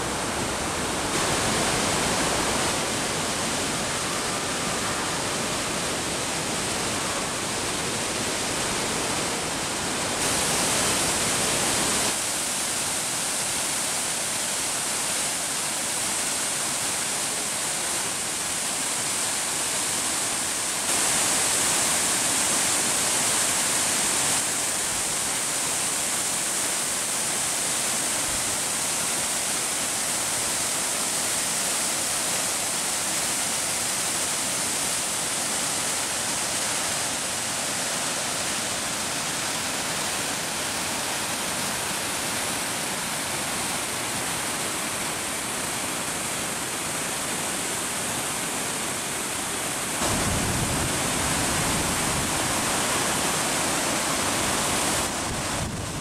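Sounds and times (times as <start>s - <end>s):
waterfall rushing: 0.0s - 56.0s
deep water rumble: 50.0s - 52.8s.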